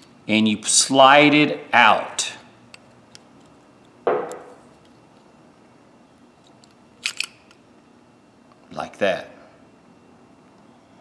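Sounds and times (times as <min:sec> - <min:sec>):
sharp metal knock: 0:04.1 - 0:04.6.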